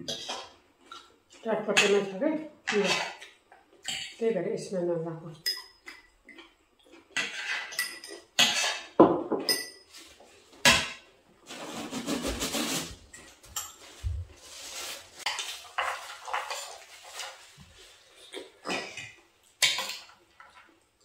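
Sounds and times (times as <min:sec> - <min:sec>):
cutlery clinking on plates: 0:07.2 - 0:10.1.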